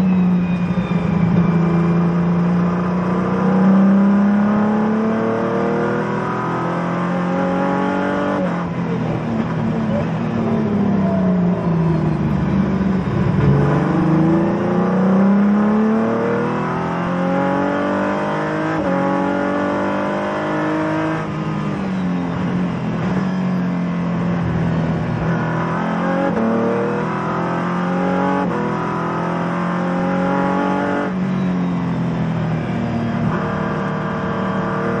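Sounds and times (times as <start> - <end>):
race car engine revving: 1.2 - 31.2, 32.0 - 35.0.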